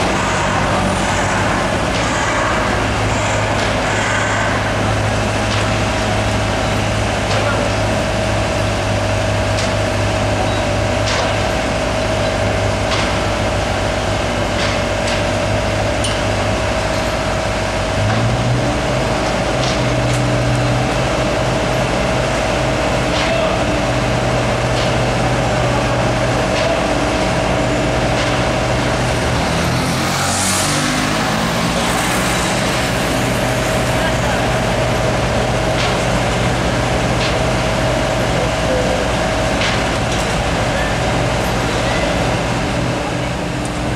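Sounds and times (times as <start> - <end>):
diesel machinery engine with whine: 0.0 - 43.9.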